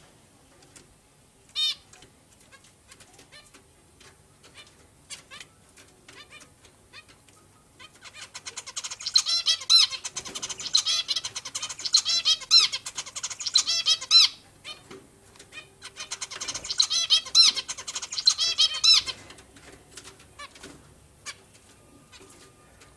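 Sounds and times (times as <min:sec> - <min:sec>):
zebra finches calling: 0:01.5 - 0:22.9.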